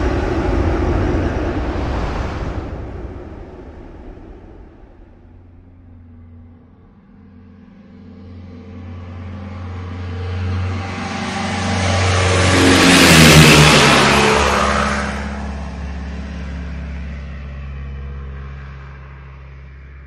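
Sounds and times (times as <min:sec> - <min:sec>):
car driving past: 0:00.0 - 0:20.0.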